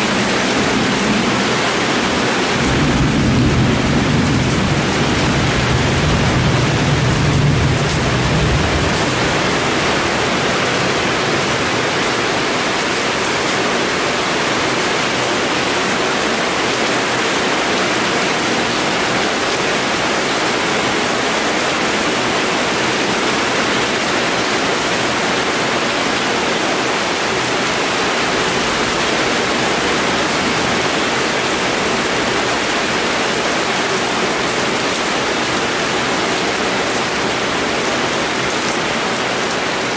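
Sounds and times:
thunder rumble: 0.0 - 11.8
heavy rain pouring: 0.0 - 39.9.

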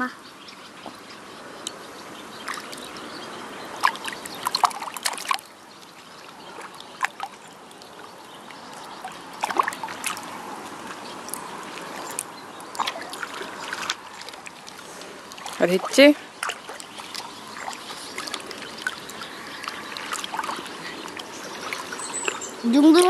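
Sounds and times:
steady wash of water: 0.8 - 23.0
hands splashing shallow water: 2.4 - 2.9, 3.8 - 5.6, 6.2 - 8.0, 8.6 - 23.0.

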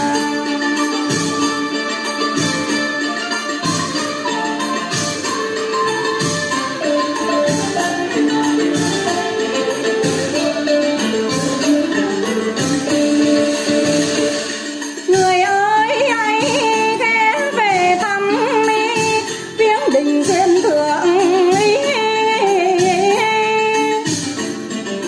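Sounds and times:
woman singing ornamented lines: 0.0 - 1.9, 15.1 - 24.1
instrumental accompaniment: 0.0 - 25.0.

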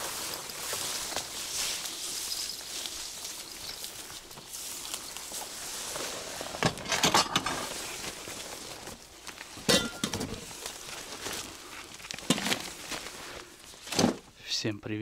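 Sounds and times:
hard objects clinking and knocking: 9.6 - 10.4.

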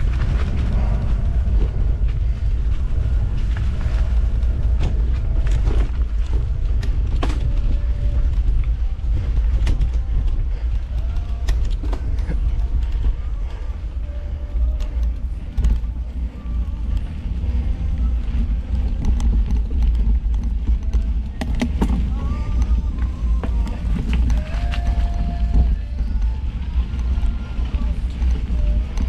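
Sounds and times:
bike rattling and knocking: 0.0 - 29.0
wind rumble on microphone: 0.0 - 29.0.

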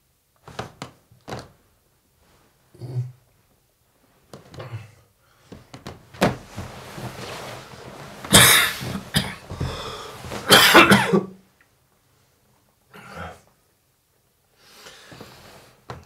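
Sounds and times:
person coughing hard: 8.3 - 9.7, 10.4 - 11.4.

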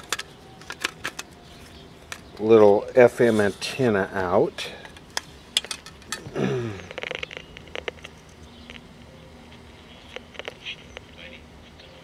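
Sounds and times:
faint hum: 0.0 - 12.0
small clicks from handling radio: 6.9 - 8.9.

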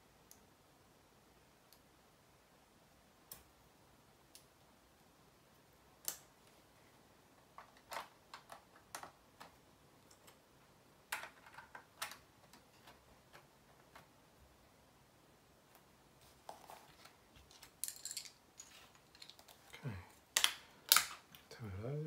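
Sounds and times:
plastic bricks clicking: 7.5 - 10.4.

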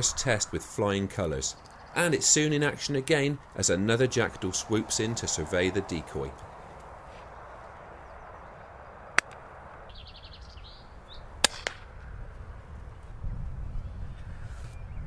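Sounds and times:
steady outdoor hiss: 0.0 - 15.0
air rifle firing: 11.4 - 11.9.

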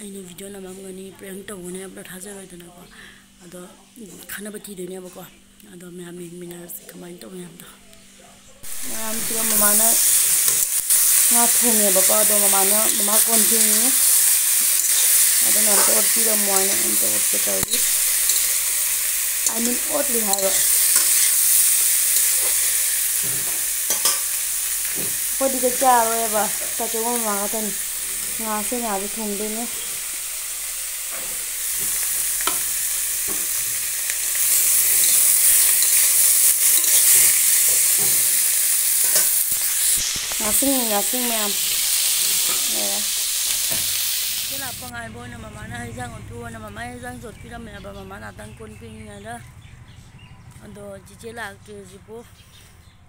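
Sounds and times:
vegetables sizzling in a wok: 8.6 - 45.1
spatula scraping a pan: 13.0 - 18.8, 19.6 - 24.3.

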